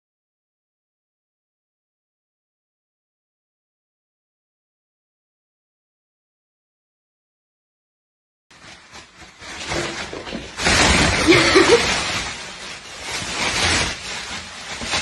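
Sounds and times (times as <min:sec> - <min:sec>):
plastic bag rustling: 0:08.5 - 0:15.0.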